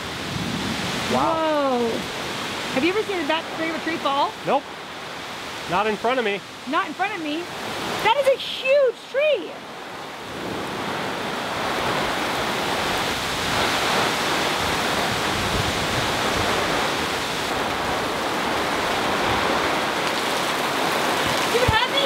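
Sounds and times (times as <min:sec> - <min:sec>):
heavy rain pouring: 0:00.0 - 0:22.0.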